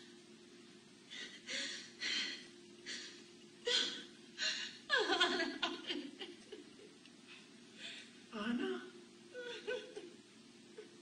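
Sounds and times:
woman sobbing: 0:01.1 - 0:06.6, 0:07.9 - 0:10.2.

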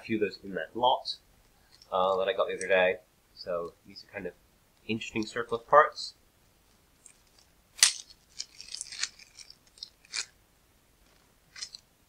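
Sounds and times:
small plastic parts clicking: 0:07.0 - 0:10.3
plastic parts crackling: 0:07.0 - 0:10.4, 0:11.0 - 0:11.9.

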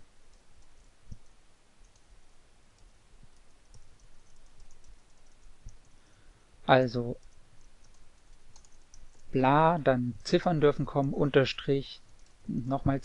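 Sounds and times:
keyboard keys clicking: 0:03.4 - 0:05.9, 0:07.2 - 0:09.2.

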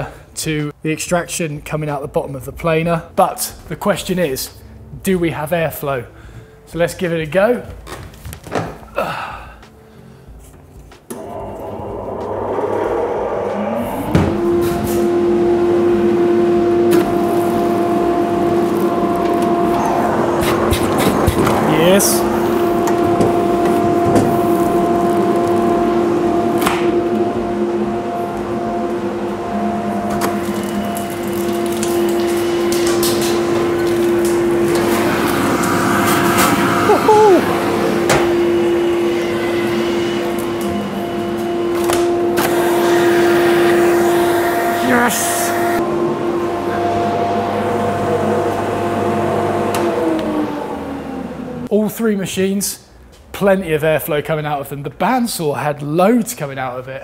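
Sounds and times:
dust extractor motor humming: 0:11.1 - 0:51.7.

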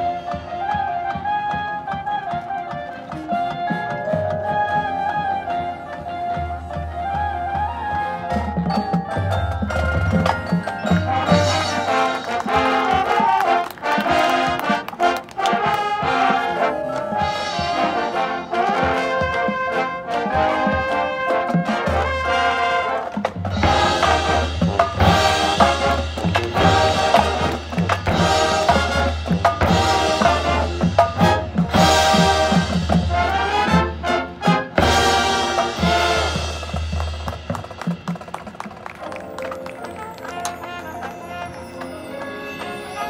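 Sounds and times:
marching percussion: 0:00.0 - 0:43.0
brass playing melody: 0:09.7 - 0:37.6, 0:39.0 - 0:43.0.

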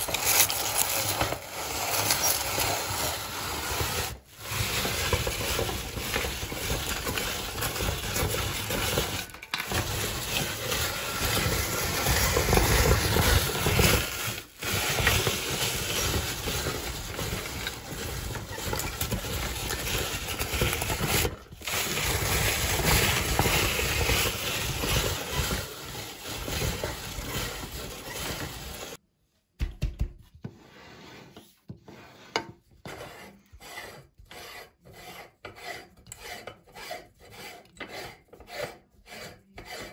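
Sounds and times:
meat grinder crunching dry sticks: 0:00.0 - 0:29.0.

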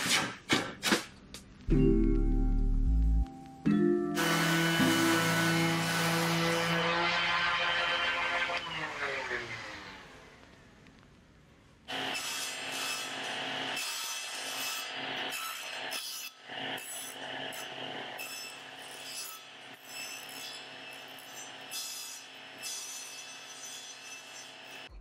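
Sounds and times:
table saw cutting wood: 0:04.2 - 0:10.4, 0:11.9 - 0:24.9.

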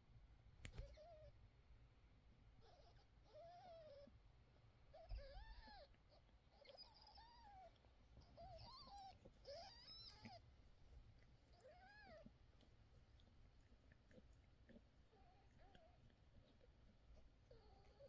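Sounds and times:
newborn kittens mewing: 0:00.7 - 0:01.4, 0:02.6 - 0:04.2, 0:04.9 - 0:18.0.

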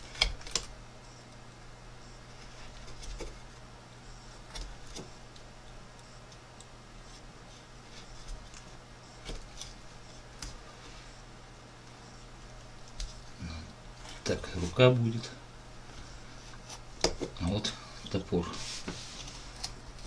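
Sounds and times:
low steady hum: 0:00.0 - 0:20.0
knife carving wood clicks: 0:00.1 - 0:00.7.

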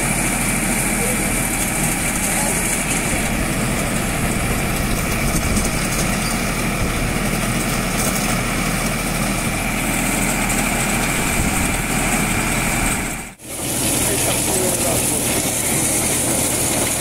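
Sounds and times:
corn thresher machine noise: 0:00.0 - 0:17.0
tractor engine running: 0:00.0 - 0:17.0.

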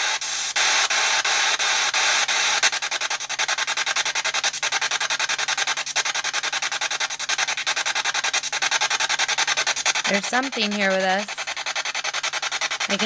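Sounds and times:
steady hiss: 0:00.0 - 0:13.0
pulsing radio static: 0:08.5 - 0:11.6, 0:12.3 - 0:13.0.

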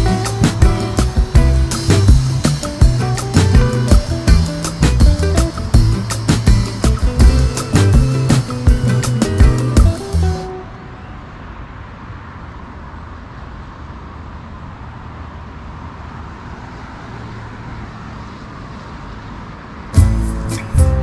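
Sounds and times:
music: 0:00.0 - 0:10.6, 0:20.0 - 0:21.0
road traffic hum: 0:00.0 - 0:21.0.

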